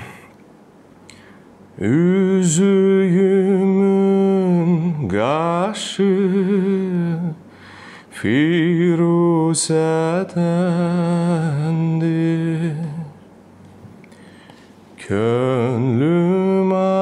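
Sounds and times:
man singing a cappella: 1.8s - 13.3s, 15.0s - 17.0s.

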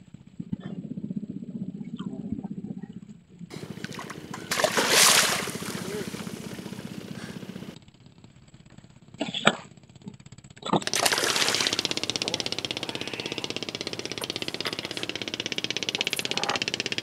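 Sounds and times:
fish splashing at the surface: 3.5s - 6.9s, 10.8s - 16.6s
water sloshing: 3.5s - 7.7s, 10.8s - 17.0s.

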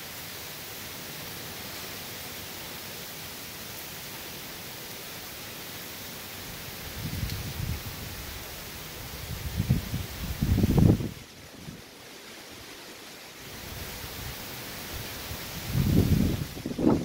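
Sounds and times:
hiss of rain: 0.0s - 17.0s
wind gusts buffeting microphone: 6.8s - 11.8s, 13.5s - 17.0s.

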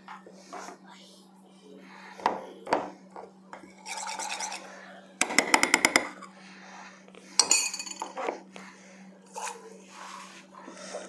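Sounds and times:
metal spoon scraping a bowl: 3.6s - 4.7s.

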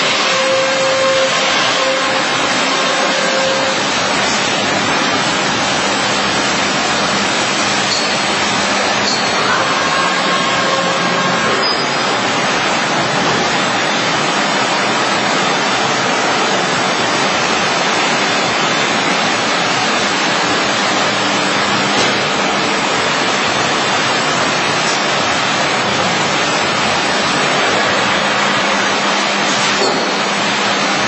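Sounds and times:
router spindle cutting panel: 0.0s - 14.1s
dust extraction noise: 0.0s - 31.0s.

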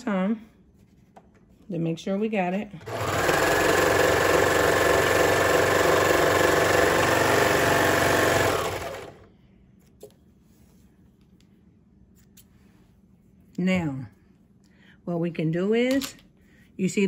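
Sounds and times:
serger sewing machine running: 2.8s - 9.3s.

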